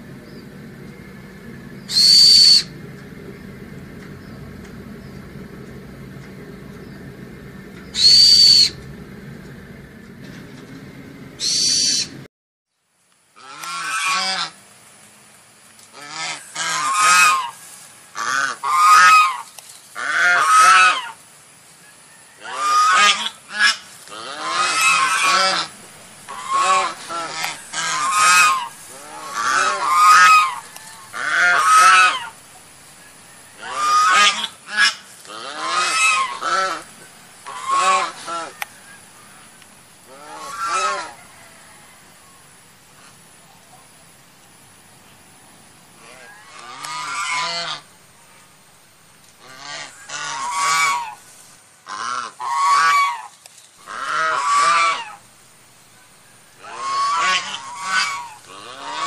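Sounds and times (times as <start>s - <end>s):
geese honking: 0.0s - 12.3s, 15.9s - 21.2s, 22.4s - 44.1s, 45.9s - 48.4s, 49.4s - 55.3s, 55.9s - 59.0s
low hum: 0.0s - 12.3s, 24.0s - 51.6s
short high squeaks: 1.8s - 2.8s, 7.8s - 8.9s.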